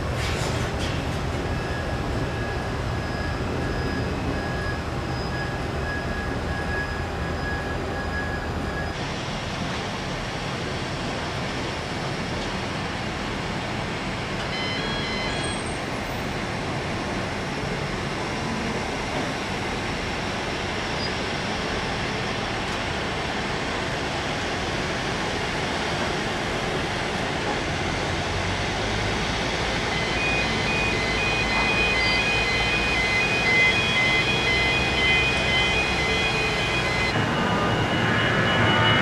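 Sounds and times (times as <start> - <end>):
jet engines roaring: 27.8 - 39.0.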